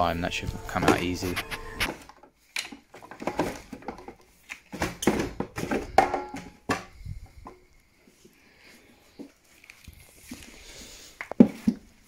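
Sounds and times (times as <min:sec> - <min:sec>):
plastic scraping: 0:00.3 - 0:07.6
plastic knocks and clicks: 0:01.9 - 0:07.6.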